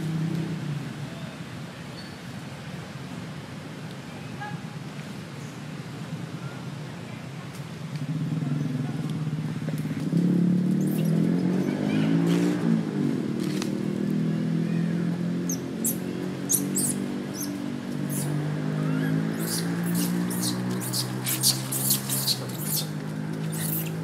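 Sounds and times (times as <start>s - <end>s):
baby monkey squealing: 15.5s - 22.9s, 23.5s - 23.9s.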